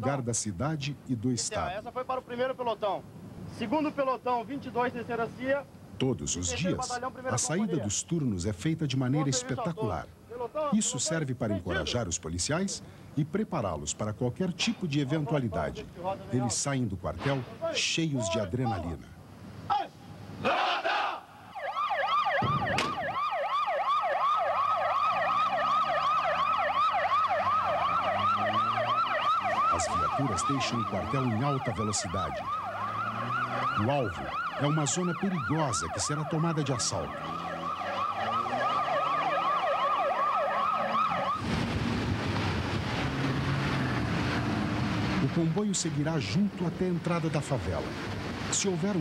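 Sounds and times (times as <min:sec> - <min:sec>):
road and wind noise: 0:00.0 - 0:49.0
police sirens wailing: 0:20.4 - 0:47.0
truck engines revving: 0:21.8 - 0:49.0
vehicle engine running at speed: 0:41.3 - 0:45.4.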